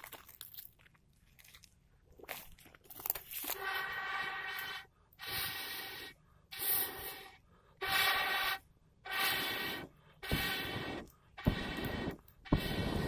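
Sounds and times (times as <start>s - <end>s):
blowing through a metal pipe: 3.5s - 13.0s.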